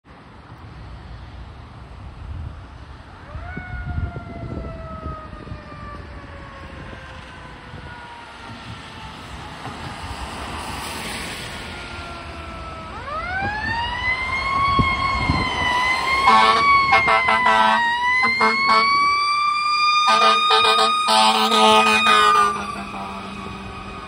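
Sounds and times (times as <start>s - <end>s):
fire truck siren wailing: 3.2s - 24.0s
car passing on wet road: 6.2s - 24.0s.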